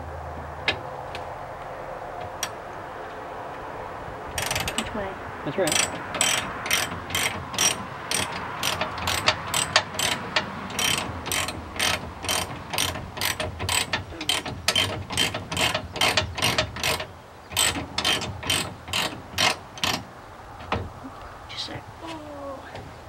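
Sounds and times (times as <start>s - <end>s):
ratchet wrench clicking: 4.4s - 4.9s, 5.7s - 20.0s.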